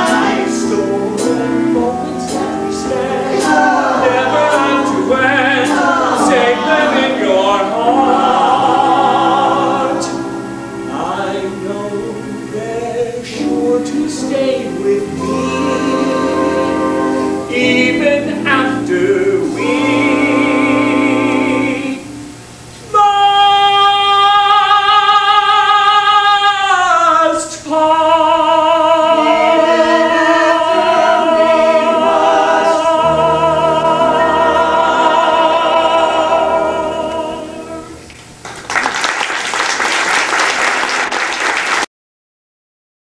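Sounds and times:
close-harmony vocal group: 0.0s - 38.1s
audience applause: 38.4s - 41.9s.

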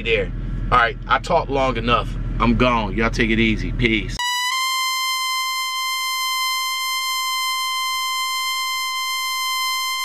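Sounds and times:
high buzzy electronic tone: 4.2s - 10.0s.

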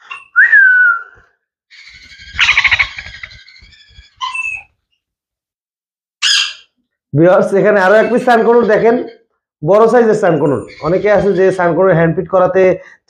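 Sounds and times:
parrot screeching: 1.7s - 4.7s, 6.2s - 6.8s
parrot squawk: 1.7s - 4.7s, 6.2s - 6.8s.

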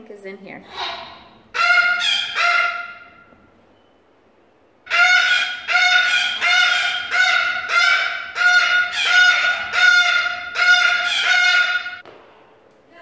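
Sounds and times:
cockatoo calling loudly: 0.7s - 3.5s, 4.9s - 12.0s.

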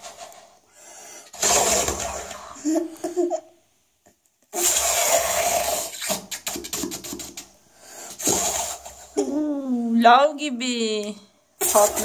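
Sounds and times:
blowing bubbles through straw: 1.3s - 2.6s, 4.5s - 9.2s.

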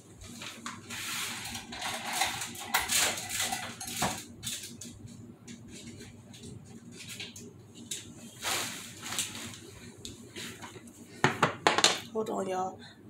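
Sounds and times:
kitchen items clattering: 0.4s - 4.9s, 11.2s - 12.1s.

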